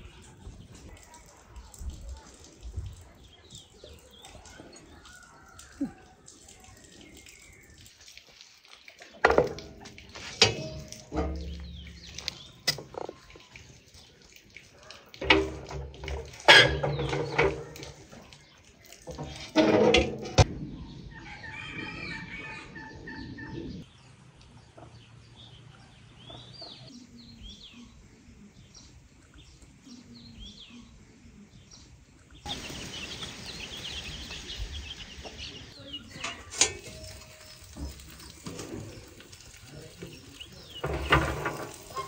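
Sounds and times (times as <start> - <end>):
small birds chirping: 0.0 - 19.5, 23.1 - 42.0
sharp knocks and clatters: 9.2 - 13.2, 15.2 - 18.0, 19.1 - 20.5, 40.7 - 42.0
chickens clucking: 32.2 - 42.0.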